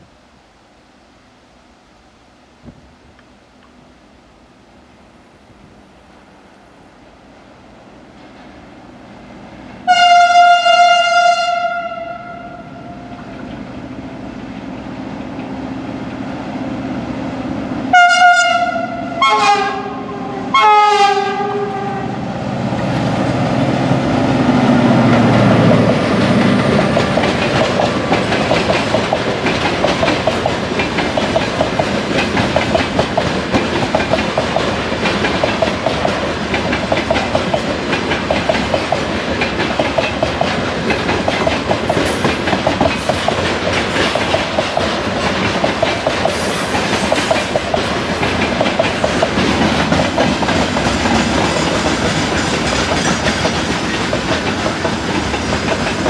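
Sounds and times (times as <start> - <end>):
locomotive horn blasts: 9.9 - 13.1, 17.9 - 22.2
train wheels clicking over rails: 22.7 - 56.0.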